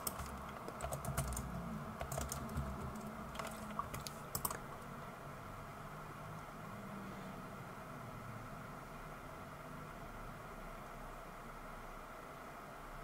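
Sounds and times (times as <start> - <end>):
computer keyboard typing: 0.0 - 4.9.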